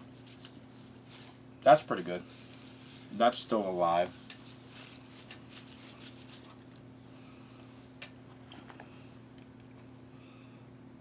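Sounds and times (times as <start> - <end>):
crackers rustling in plastic tray: 0.0 - 6.9
low electrical hum: 0.0 - 11.0.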